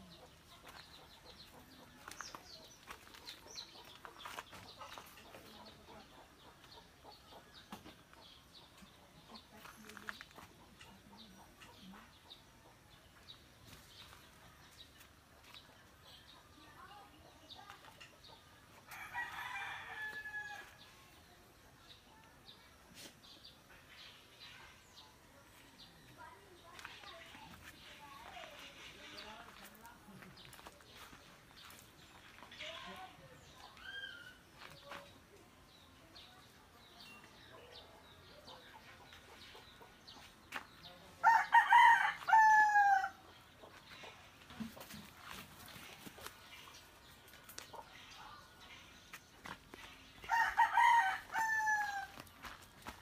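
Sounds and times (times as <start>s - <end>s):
small birds chirping: 0.0s - 53.0s
rooster crowing: 41.2s - 43.1s, 50.3s - 52.1s.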